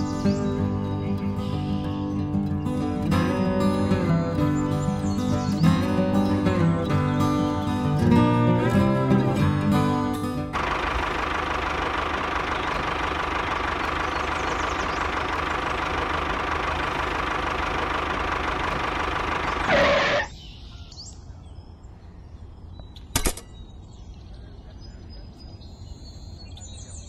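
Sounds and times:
small engine running: 8.0 - 20.3
sharp clicks: 23.0 - 23.6.

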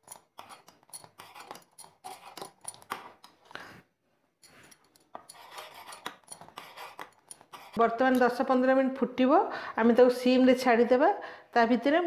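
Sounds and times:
spoon scraping saucepan: 0.0 - 3.4, 4.4 - 8.7.

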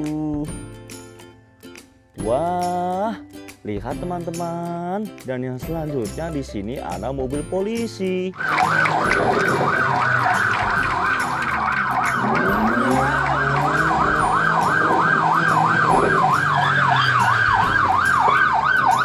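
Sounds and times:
police siren wailing: 8.4 - 19.0.

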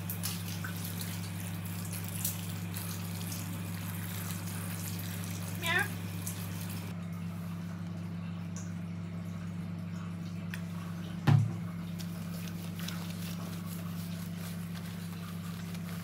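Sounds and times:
hand rubbing wet fur: 0.0 - 7.6, 11.9 - 16.0.

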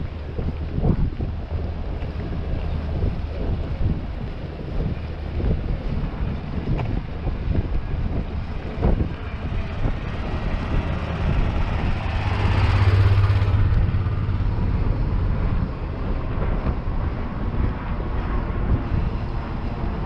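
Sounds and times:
low rumble of street ambience: 0.0 - 20.0
vehicle passing by: 8.4 - 20.0.

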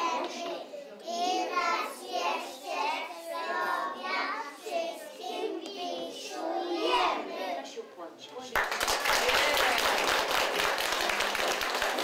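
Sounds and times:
young children singing: 0.0 - 7.6.

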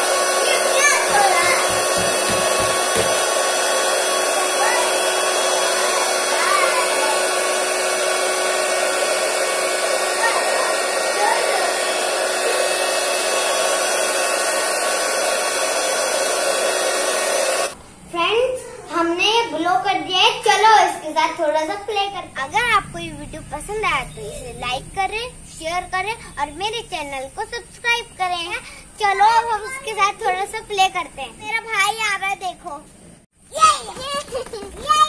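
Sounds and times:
electric air pump running: 0.0 - 17.8.

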